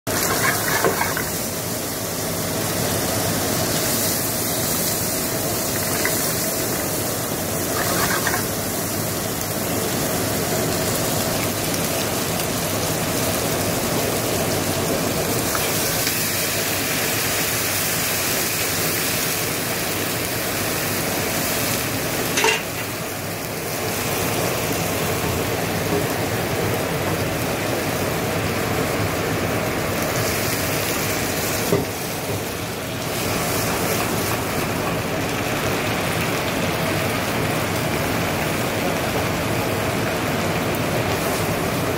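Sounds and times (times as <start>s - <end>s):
liquid bubbling in pan: 0.1s - 11.9s
meat sizzling in a frying pan: 0.1s - 41.9s.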